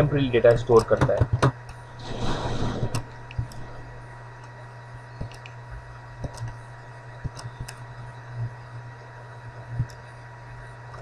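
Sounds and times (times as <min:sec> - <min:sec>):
low electrical hum: 0:00.0 - 0:11.0
faint high whine: 0:01.6 - 0:11.0.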